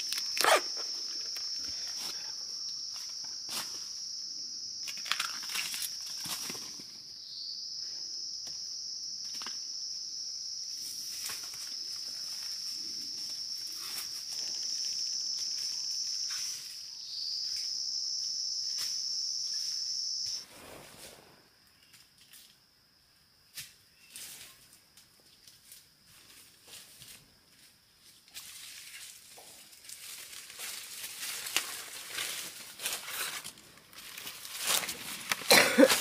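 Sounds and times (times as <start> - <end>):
cicada buzzing: 0.0 - 5.0, 11.6 - 20.5.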